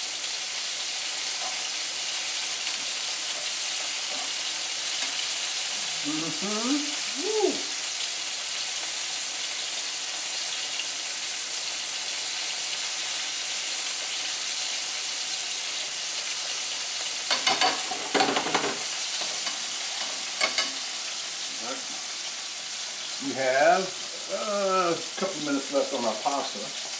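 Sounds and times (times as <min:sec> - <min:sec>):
chicken sizzling in a skillet: 0:00.0 - 0:26.9
metal tongs clinking on pan: 0:17.3 - 0:20.8.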